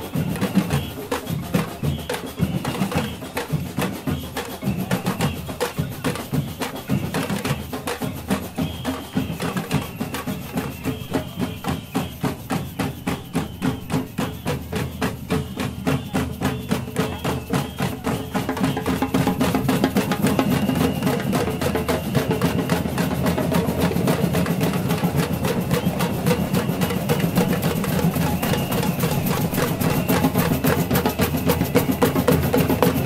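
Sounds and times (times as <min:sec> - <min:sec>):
metal shakers: 0:00.0 - 0:33.0.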